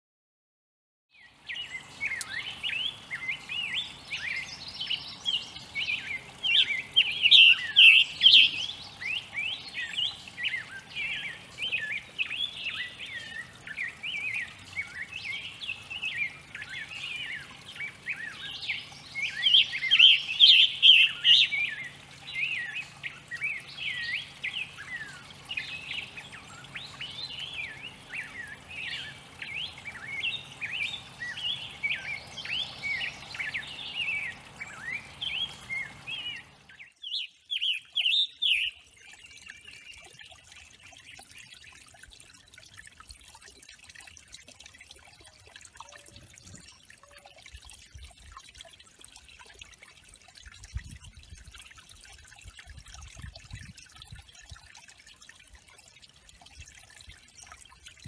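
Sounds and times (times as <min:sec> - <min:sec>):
songbirds chirping and singing: 0:01.1 - 0:42.1.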